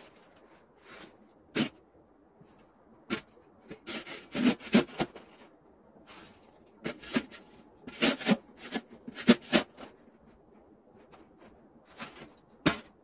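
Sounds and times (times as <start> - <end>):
metal shovel scraping snow: 0.8 - 1.8, 3.1 - 5.5, 6.1 - 9.9, 11.9 - 13.0.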